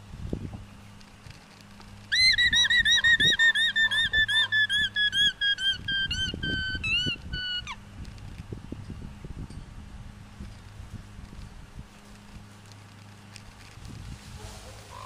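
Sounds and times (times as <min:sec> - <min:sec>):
alpaca alarm call: 0:02.1 - 0:07.8, 0:14.6 - 0:15.0.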